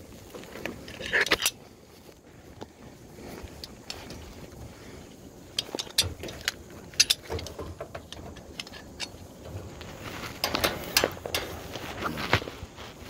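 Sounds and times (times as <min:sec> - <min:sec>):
metal climbing hardware clinking: 0:00.4 - 0:01.7, 0:03.4 - 0:04.6, 0:05.4 - 0:12.2.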